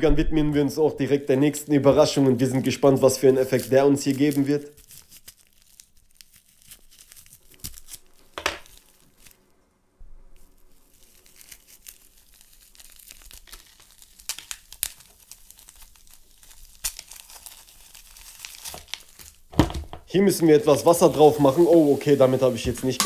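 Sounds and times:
plastic crinkling and tearing: 0:01.0 - 0:09.6, 0:10.3 - 0:19.6, 0:20.4 - 0:23.0
knife slitting plastic wrapping: 0:02.1 - 0:09.4, 0:10.4 - 0:19.5, 0:20.6 - 0:23.0.

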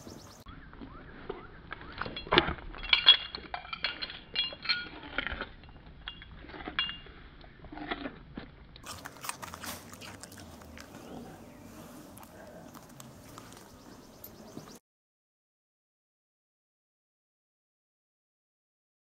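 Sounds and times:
dogs crunching carrots: 0:00.7 - 0:14.6
metal collar tags clinking: 0:02.1 - 0:07.1, 0:12.8 - 0:14.6.

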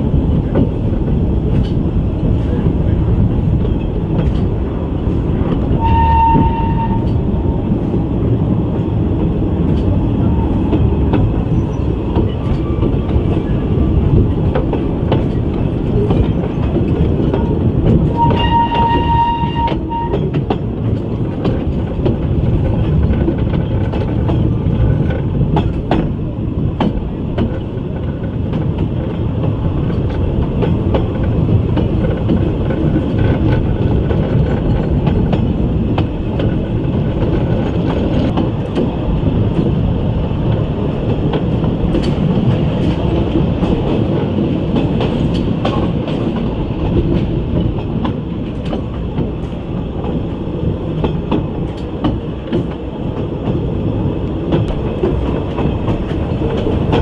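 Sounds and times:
train carriage rumbling: 0:00.0 - 0:57.0
steam locomotive whistle: 0:05.8 - 0:07.2, 0:18.1 - 0:20.3.

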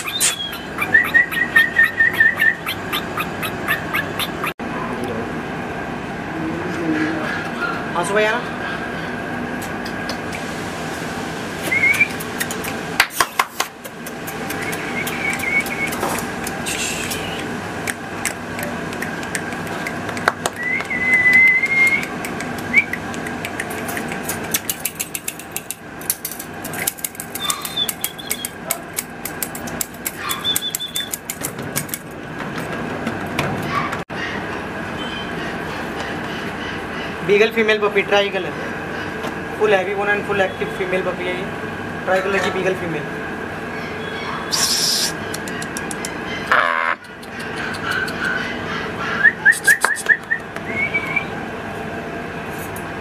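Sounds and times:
puppies whining: 0:00.0 - 0:04.6, 0:13.9 - 0:17.5, 0:18.2 - 0:24.8, 0:26.7 - 0:28.8, 0:30.0 - 0:32.0, 0:43.7 - 0:51.4
steady background hum: 0:00.0 - 0:53.0
rapid clicks and rattles: 0:22.0 - 0:33.8.

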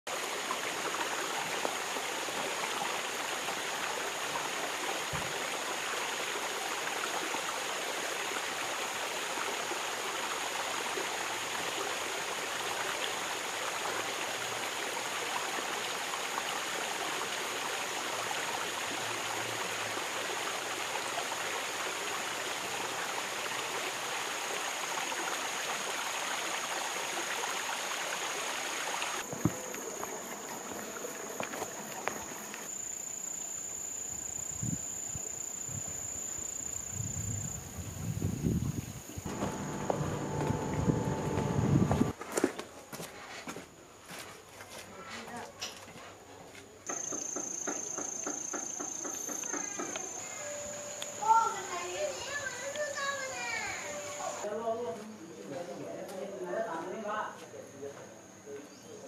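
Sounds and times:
running water: 0:00.1 - 0:32.8, 0:38.5 - 0:42.2, 0:48.2 - 0:54.6
high-pitched insect whine: 0:29.2 - 0:42.1, 0:46.9 - 0:54.5.

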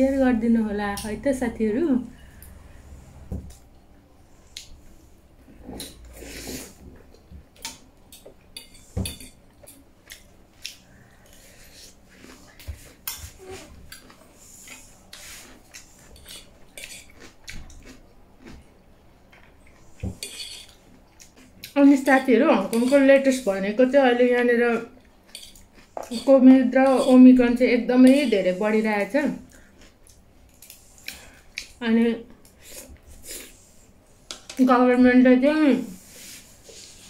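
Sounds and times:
chewing: 0:09.6 - 0:21.8, 0:25.0 - 0:26.3.

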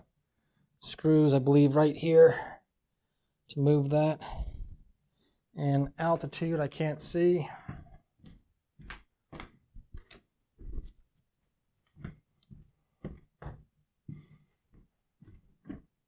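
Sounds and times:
footsteps on hardwood floor: 0:07.6 - 0:11.0, 0:11.9 - 0:15.9.

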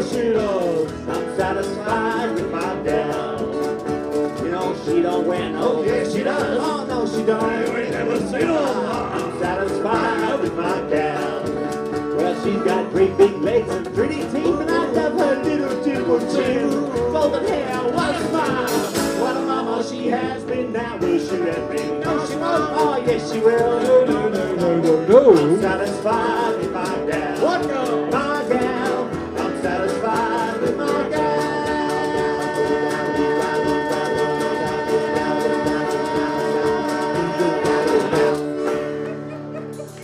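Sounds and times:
jug band playing: 0:00.0 - 0:40.0
scratchy percussion beat: 0:22.1 - 0:27.1.

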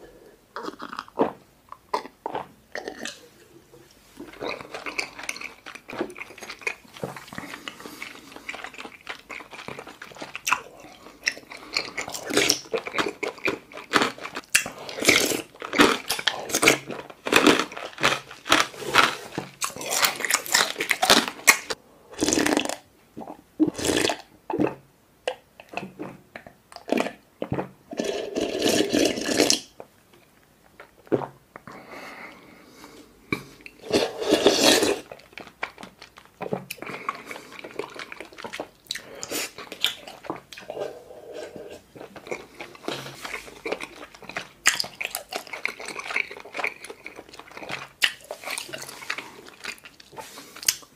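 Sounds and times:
wet chewing: 0:04.2 - 0:22.8, 0:33.6 - 0:50.9
slurping: 0:33.4 - 0:50.9
lip smacks: 0:47.7 - 0:50.9.

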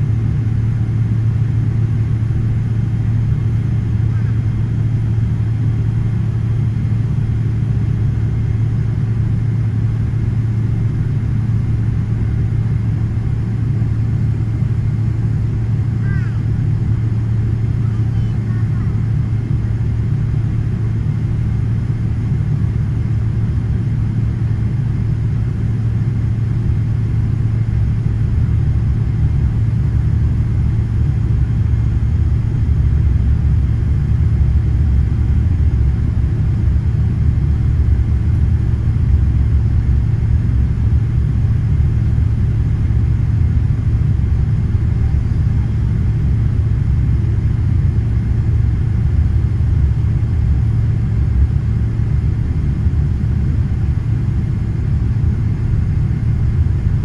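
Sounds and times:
airplane cabin rumble: 0:00.0 - 0:57.0.

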